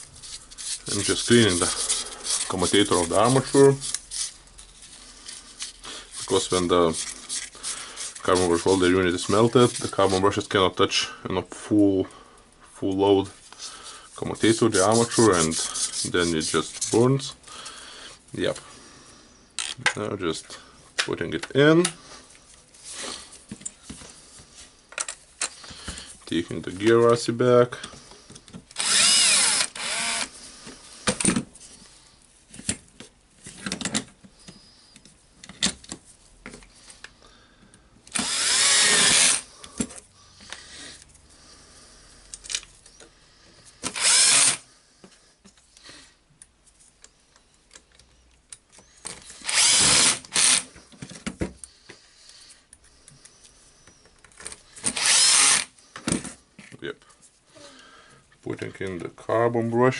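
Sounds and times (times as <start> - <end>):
clicks of parts and screws: 19.6 - 20.1, 24.9 - 25.7, 42.3 - 43.1, 46.4 - 51.8, 52.7 - 56.8
cordless drill motor whine: 28.8 - 30.3, 38.1 - 39.4, 43.9 - 44.6, 49.4 - 50.7, 54.9 - 55.7.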